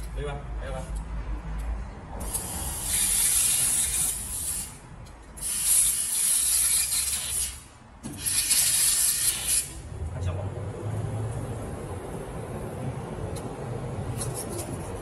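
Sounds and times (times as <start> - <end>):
hissing gas jet cutting metal: 2.2 - 4.8, 5.4 - 9.8.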